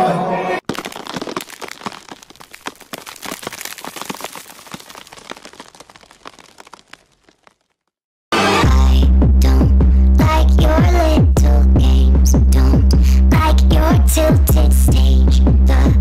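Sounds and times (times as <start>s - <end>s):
bones cracking and crunching: 0.6s - 7.9s.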